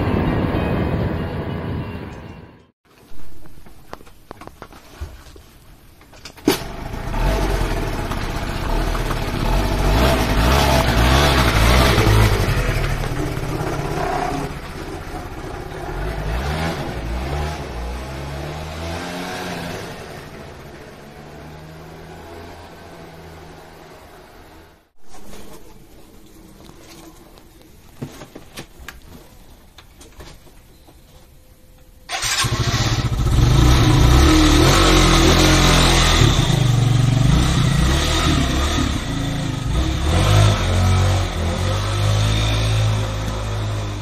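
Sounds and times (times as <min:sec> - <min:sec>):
scooter engine revving: 0:06.5 - 0:24.7, 0:32.1 - 0:44.0.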